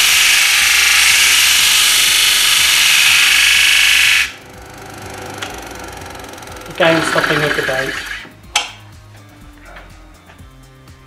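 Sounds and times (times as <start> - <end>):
disc sander grinding wood: 0.0 - 8.4.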